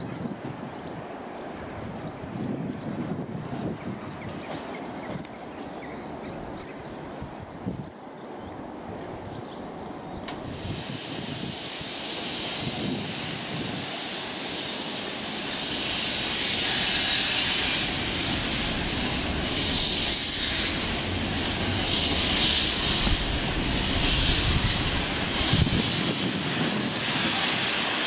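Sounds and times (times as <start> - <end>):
steam locomotive hissing steam: 10.3 - 28.0
steam locomotive chuffing: 10.4 - 28.0.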